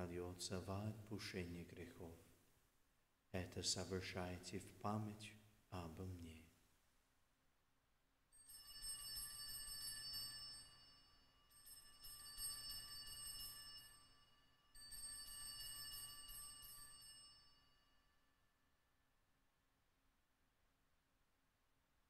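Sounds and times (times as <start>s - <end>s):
small bells jangling: 8.3s - 18.1s.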